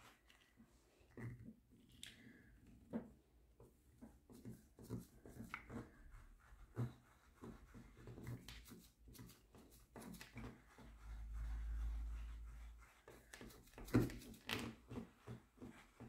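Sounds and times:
applicator dabbing and scraping: 0:04.1 - 0:16.0.

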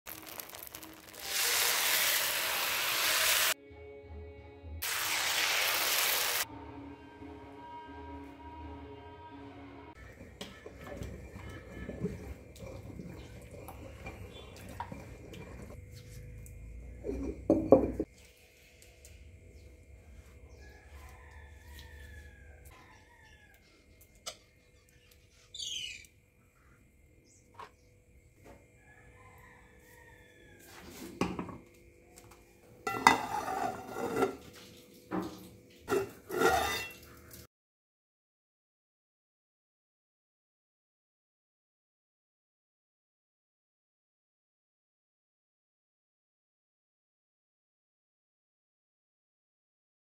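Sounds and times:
metal lid and vessels clattering: 0:10.0 - 0:15.8, 0:17.0 - 0:18.1, 0:32.8 - 0:34.5, 0:35.2 - 0:37.2
stone grinder scraping wet batter: 0:10.1 - 0:15.8, 0:35.9 - 0:37.0.

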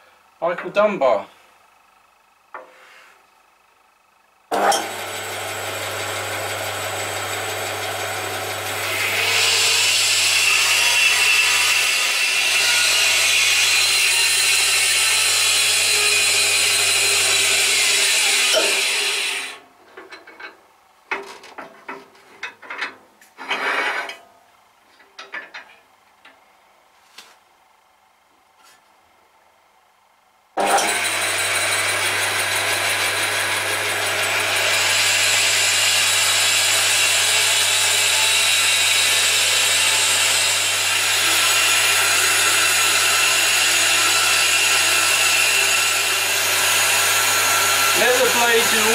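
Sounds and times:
band saw cutting wood: 0:04.5 - 0:19.6, 0:30.6 - 0:48.9.

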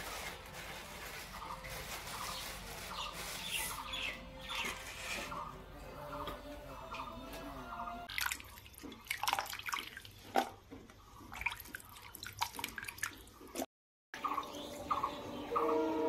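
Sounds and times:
background music: 0:00.0 - 0:08.1, 0:14.2 - 0:16.0
water splashing and dripping: 0:08.1 - 0:13.7.

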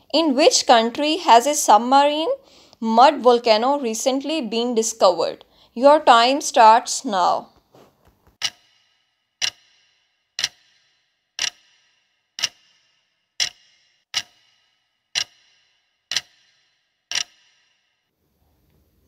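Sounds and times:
ticking clock with short ring: 0:08.4 - 0:17.5.

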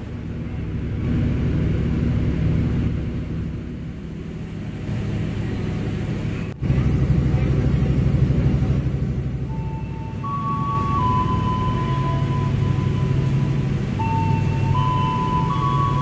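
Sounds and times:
diesel train engine idling: 0:00.0 - 0:16.0.

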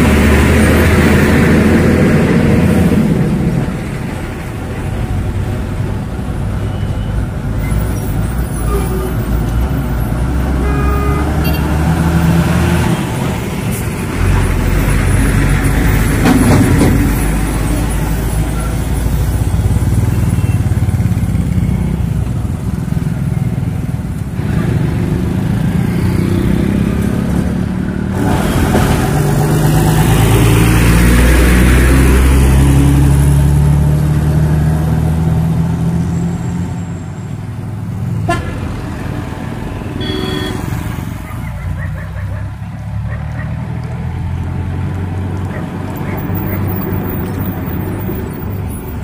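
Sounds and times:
bus engine rumbling: 0:00.0 - 0:49.0
heavy road traffic: 0:00.0 - 0:49.0
truck engine rumbling: 0:00.0 - 0:49.0
short horn toot: 0:10.6 - 0:11.7, 0:40.0 - 0:40.8.

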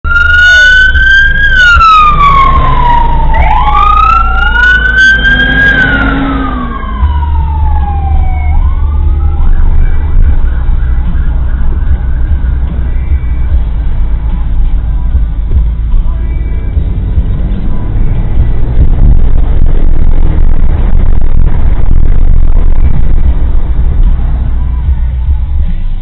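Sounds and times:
fire truck sirens wailing: 0:00.0 - 0:14.3
low road noise rumble: 0:00.0 - 0:26.0.

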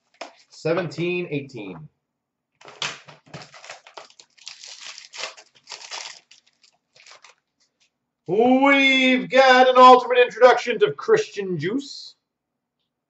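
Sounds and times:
foil wrapper crinkling and tearing: 0:02.6 - 0:07.5.

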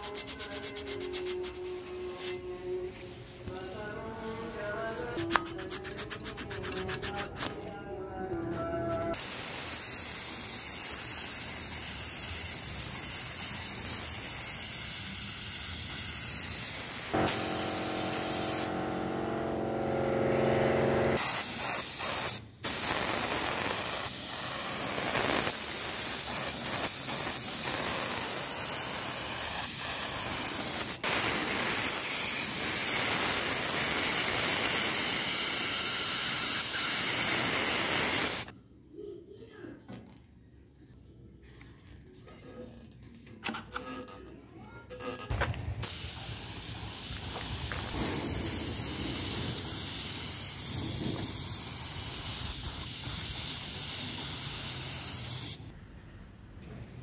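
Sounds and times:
air spray gun hissing: 0:09.1 - 0:38.5, 0:45.8 - 0:55.7.

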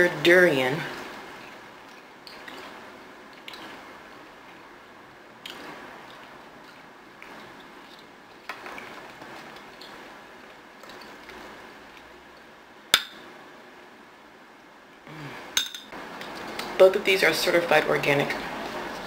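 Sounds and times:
metal spoon clinking glass bowl: 0:15.6 - 0:15.9.

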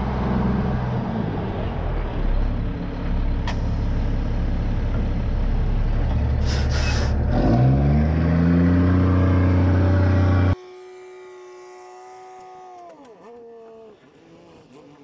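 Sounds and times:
diesel truck engine running: 0:00.0 - 0:10.6
air brake hisses: 0:06.4 - 0:07.2.

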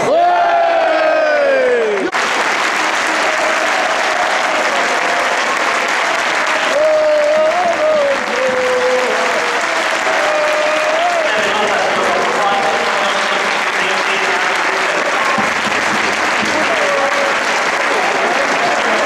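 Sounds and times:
crowd shout falling in pitch: 0:00.0 - 0:12.8
crowd applauding: 0:01.3 - 0:19.0.

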